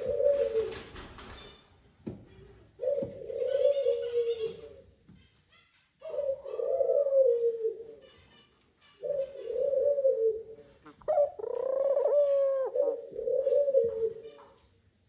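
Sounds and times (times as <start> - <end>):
dove cooing: 0.0 - 1.0, 2.7 - 4.9, 6.0 - 8.1, 9.0 - 14.4.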